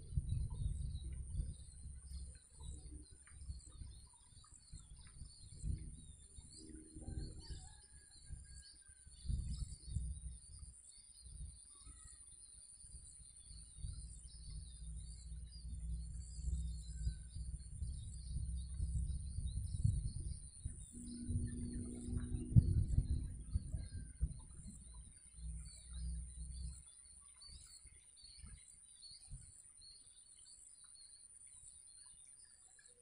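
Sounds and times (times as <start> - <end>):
low rumble: 0.0 - 4.1, 4.7 - 8.4, 13.3 - 26.8
high insect drone: 11.4 - 27.0.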